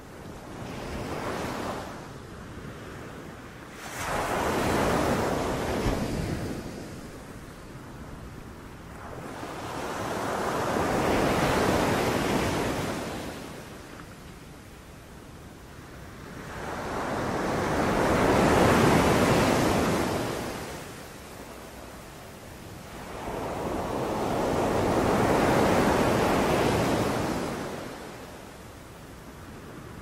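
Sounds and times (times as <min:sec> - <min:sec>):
sea waves breaking on beach: 0:03.8 - 0:07.0.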